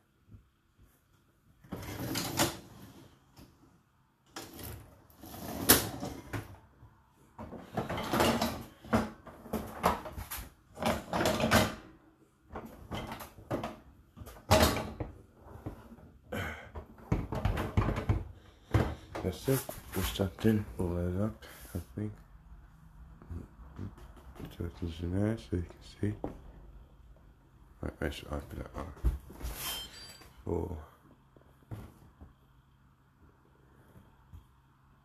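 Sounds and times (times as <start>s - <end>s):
dishwasher racks rattling: 7.4s - 11.9s, 12.6s - 15.1s.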